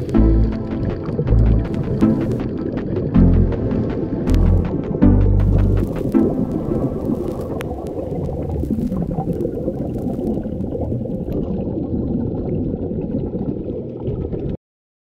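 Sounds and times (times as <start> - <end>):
muffled underwater rush: 0.0 - 14.6.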